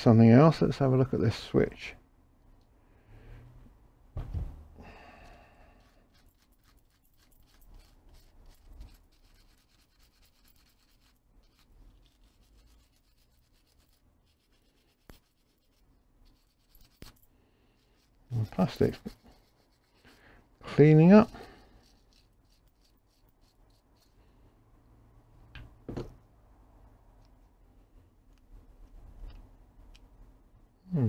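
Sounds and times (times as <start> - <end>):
rubbing and scraping of handled parts: 5.7 - 24.5.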